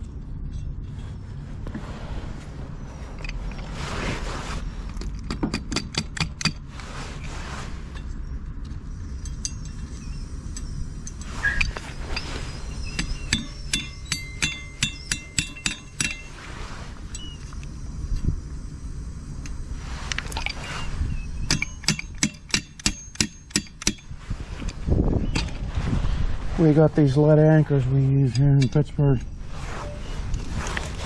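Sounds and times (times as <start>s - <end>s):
metal tool tapping metal: 12.9s - 16.4s, 21.5s - 24.1s.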